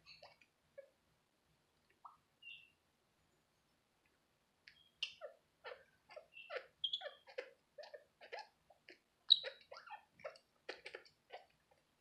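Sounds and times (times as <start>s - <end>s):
parrot high squeak: 5.1s - 8.4s, 9.3s - 10.1s.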